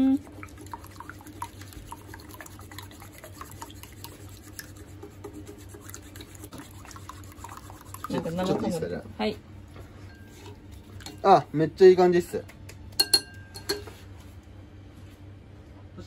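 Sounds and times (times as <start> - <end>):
chopsticks beating eggs in bowl: 0.0 - 8.9.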